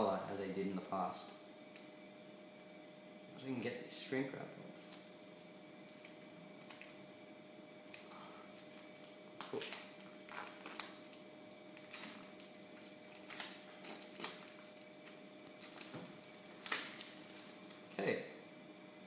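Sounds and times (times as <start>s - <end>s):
plastic shrink wrap crinkling: 4.8s - 7.0s, 7.8s - 17.9s.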